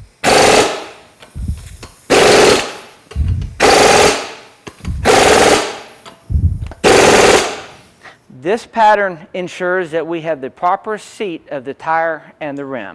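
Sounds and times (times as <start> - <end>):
impact wrench hammering: 0.0 - 7.8
low thuds: 3.1 - 3.6, 4.8 - 5.1, 6.3 - 6.8.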